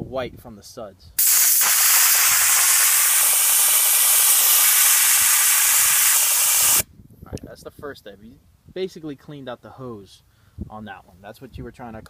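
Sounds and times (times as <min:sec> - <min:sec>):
spray gun hissing: 0:01.2 - 0:06.8.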